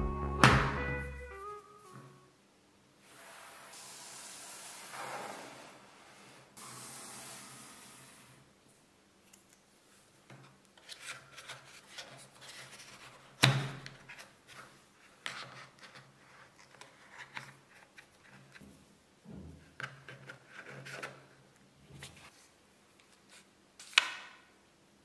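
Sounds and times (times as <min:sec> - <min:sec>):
rustling of paper and cardboard: 0:10.8 - 0:13.4.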